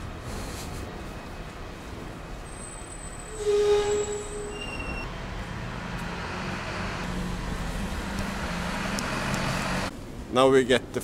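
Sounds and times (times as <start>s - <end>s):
street traffic rumble: 0.0s - 11.0s
faint high squeals: 2.4s - 5.1s
loud pitched tone: 3.3s - 5.1s
low engine hum: 5.1s - 10.1s.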